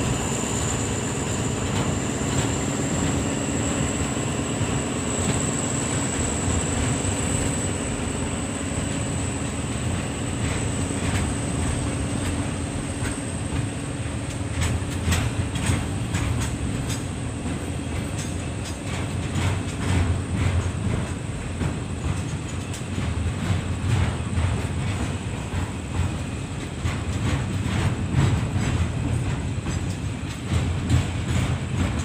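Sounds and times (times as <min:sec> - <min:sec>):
freight train rumble and whine: 0:00.0 - 0:32.0
train wheel clacks: 0:00.0 - 0:32.0.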